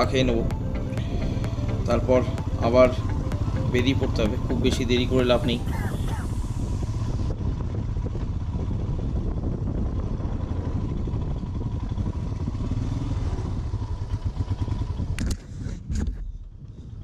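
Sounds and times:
motorcycle engine running: 0.0 - 17.0
sharp clicks and clatter: 15.1 - 16.2.

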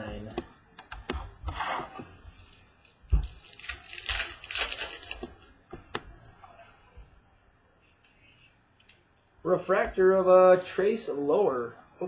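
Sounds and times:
foil wrapper crinkling and tearing: 2.4 - 5.5.

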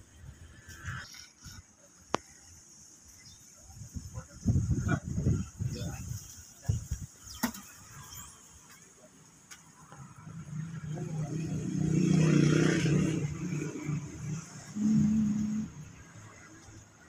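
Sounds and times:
passing vehicle engine hum: 9.8 - 17.0.

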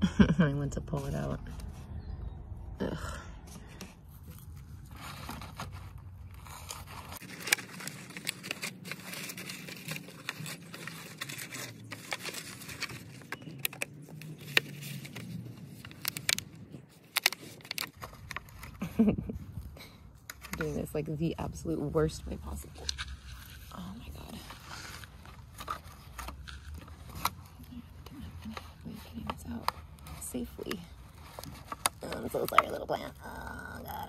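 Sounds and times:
rustling: 3.4 - 34.0
plastic seedling tray crackling: 22.1 - 34.0.

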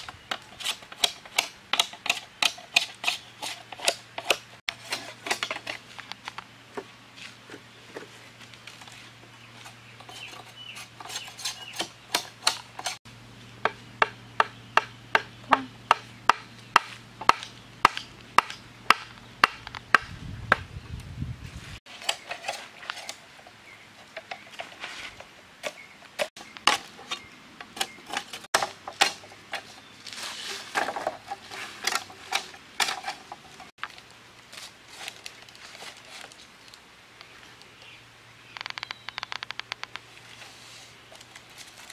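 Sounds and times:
knife chopping bamboo: 13.6 - 20.1.

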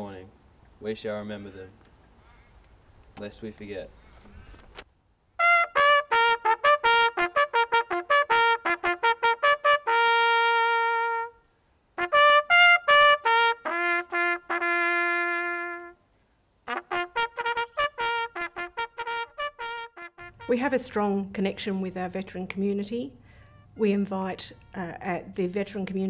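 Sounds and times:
bugle call: 5.4 - 11.4, 12.0 - 16.0, 16.7 - 20.8, 23.3 - 25.0.

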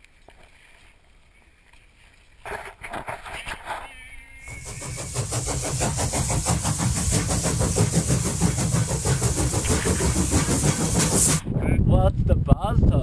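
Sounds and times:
fast-pulsing engine-like rattle: 4.5 - 11.5.

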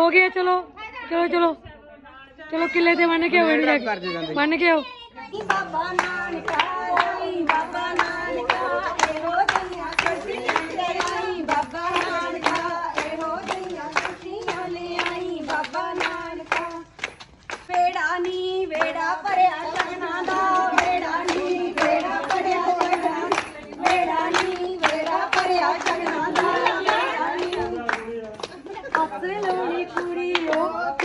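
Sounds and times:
women singing folk song: 5.3 - 28.0, 28.9 - 31.0
hands clapping in rhythm: 5.3 - 31.0.

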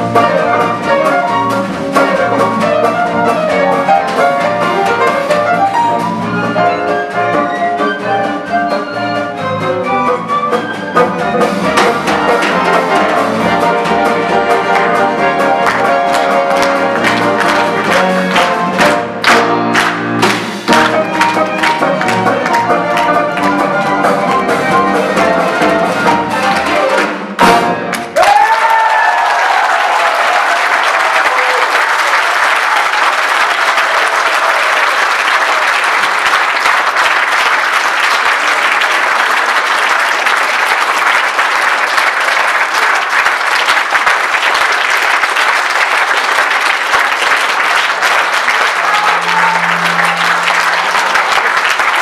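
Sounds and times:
small band playing: 0.0 - 52.0
audience applauding: 11.4 - 52.0
audience cheering: 27.9 - 52.0.

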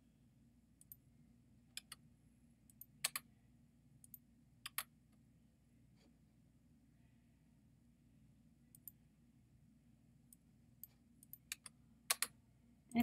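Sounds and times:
faint low hum: 0.0 - 13.0
computer mouse clicking: 1.7 - 2.0, 2.7 - 3.3, 4.0 - 4.9, 8.7 - 9.0, 10.3 - 12.4.

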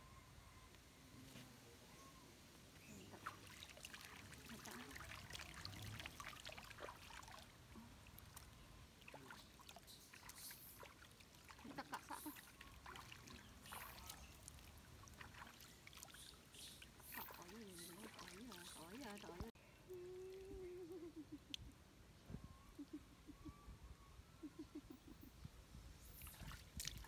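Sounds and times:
water splashing and trickling: 2.8 - 19.6, 26.0 - 27.0.

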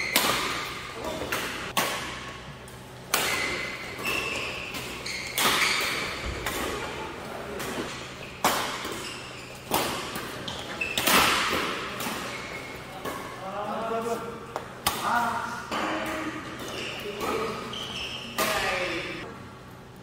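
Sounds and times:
rackets striking shuttlecock: 0.0 - 6.9, 7.6 - 13.3
shoes squeaking on court floor: 3.2 - 13.4, 15.8 - 19.2.

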